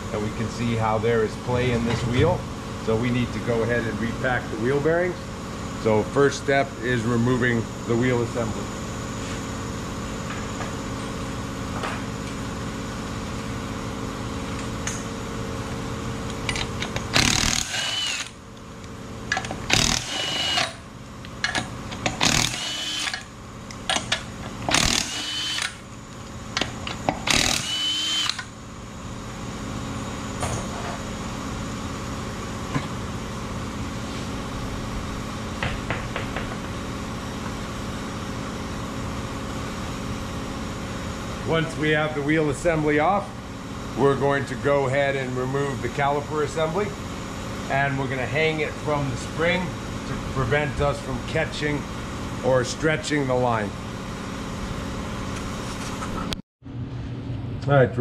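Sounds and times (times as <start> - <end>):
steady background hum: 0.0 - 58.0
impact wrench whining: 16.4 - 18.5, 19.2 - 28.6.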